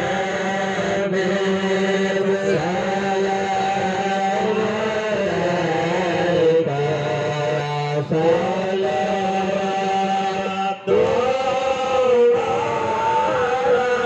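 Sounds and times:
devotional chanting: 0.0 - 14.0.

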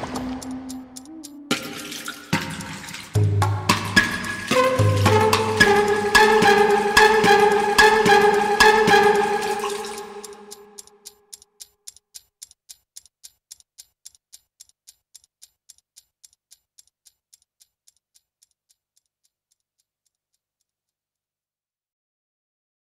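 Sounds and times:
music track: 0.0 - 11.2
clock-like ticking: 0.0 - 21.0.

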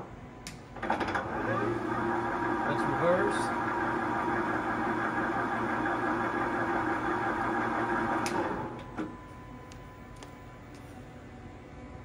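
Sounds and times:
faint steady hum: 0.0 - 12.0
lathe spindle whirring: 0.8 - 9.0.

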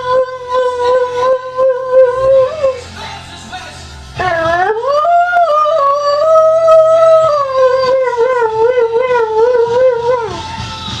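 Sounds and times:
dog howling: 0.0 - 2.8, 4.2 - 10.5
song with a beat: 8.5 - 11.0.

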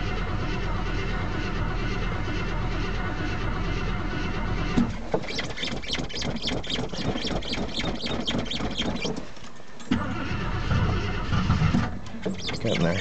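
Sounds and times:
starter cranking engine: 0.0 - 9.3, 9.9 - 13.0
fast rhythmic squeaking: 5.2 - 9.3, 12.2 - 13.0.

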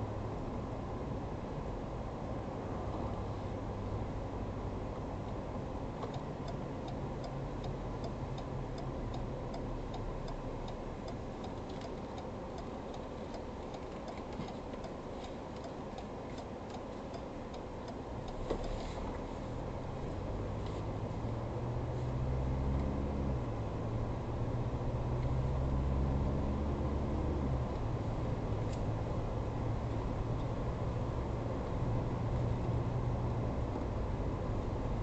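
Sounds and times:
road and engine rumble: 0.0 - 35.0
turn signal ticking: 5.2 - 21.6.

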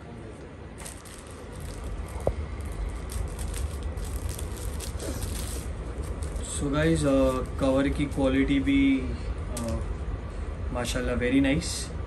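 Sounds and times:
plastic packaging crinkling: 0.8 - 8.4.

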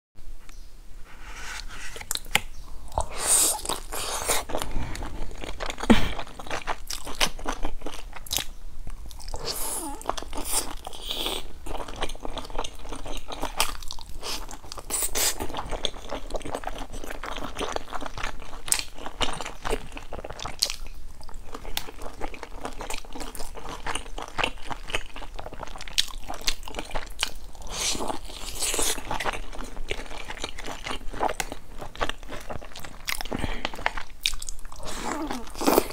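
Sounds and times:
wet chewing: 1.6 - 35.9
crunchy bites: 21.5 - 35.9.

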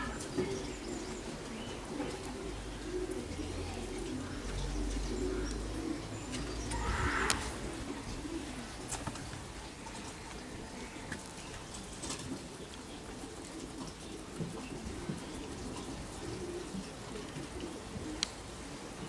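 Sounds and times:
pigeon cooing: 0.0 - 19.0.

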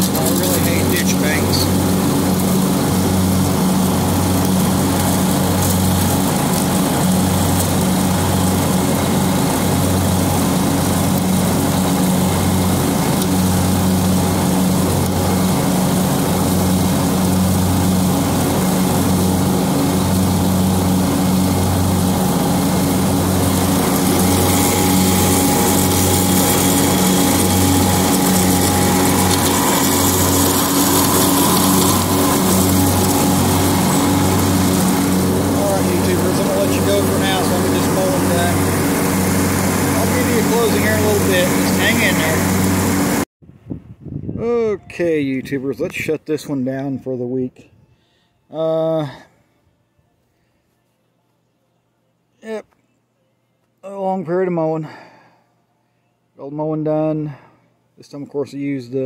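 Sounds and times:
garden tractor engine running: 0.0 - 43.3
mower deck cutting grass: 0.0 - 43.3.

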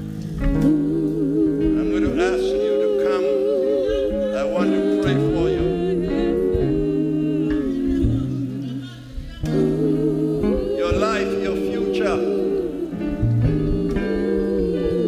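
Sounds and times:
bass guitar notes: 0.0 - 2.9, 3.8 - 15.0
keyboard: 0.0 - 15.0
person singing slow melody: 0.0 - 15.0.

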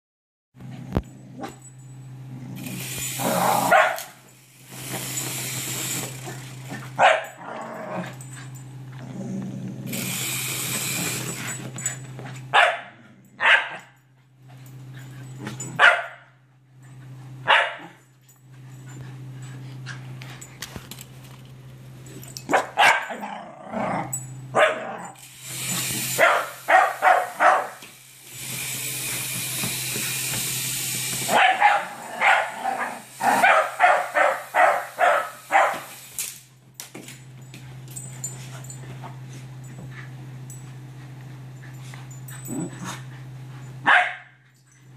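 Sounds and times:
steady low hum: 0.6 - 44.9
dogs barking: 3.5 - 4.2, 7.0 - 7.6, 12.5 - 14.0, 15.8 - 16.3, 17.4 - 18.0, 22.5 - 23.3, 24.6 - 25.2, 26.2 - 27.8, 31.3 - 35.9, 43.8 - 44.4.

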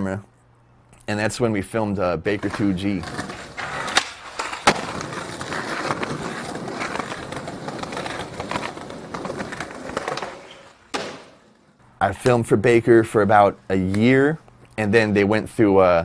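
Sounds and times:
skateboard wheels rolling on concrete: 2.2 - 11.8
skateboard clacking: 2.4 - 11.6.

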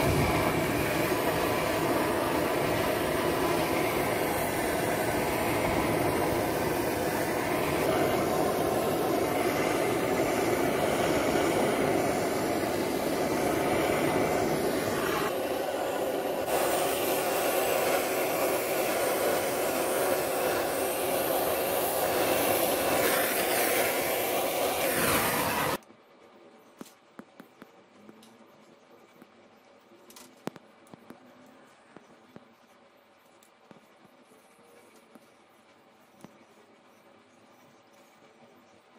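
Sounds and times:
blowtorch flame rushing: 0.0 - 25.8.

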